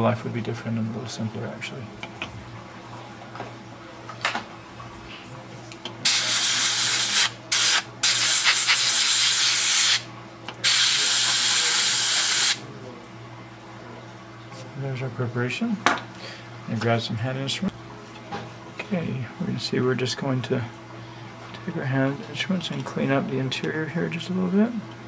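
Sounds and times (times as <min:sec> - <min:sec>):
dental air syringe hissing: 0:06.1 - 0:10.0, 0:10.6 - 0:12.6.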